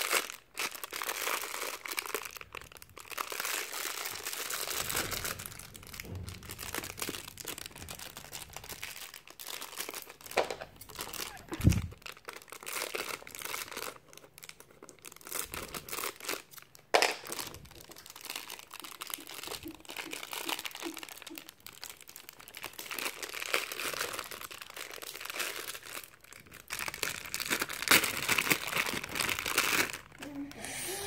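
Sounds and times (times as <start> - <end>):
plastic wrapper crinkling and tearing: 0.0 - 30.5.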